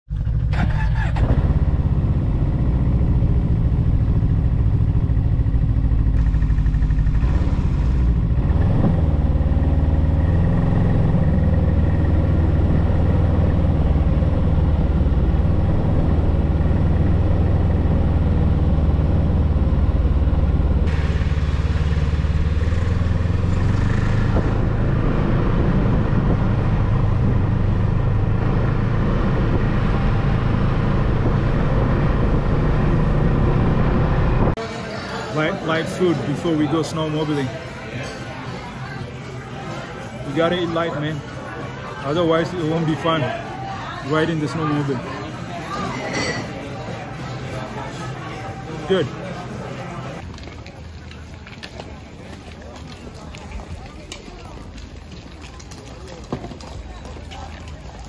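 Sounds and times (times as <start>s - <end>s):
vehicle engine running: 0.1s - 34.7s.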